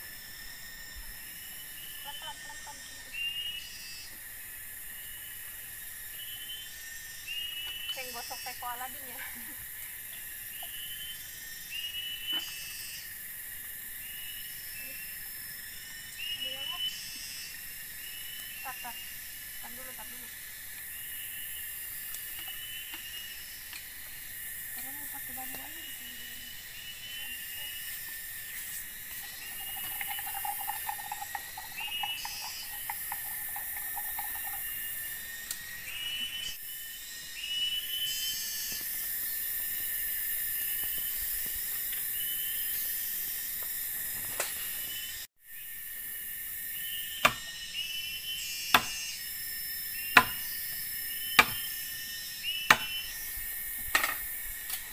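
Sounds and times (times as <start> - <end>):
forest insects hissing: 0.0 - 54.9
short chirping call: 29.5 - 33.2.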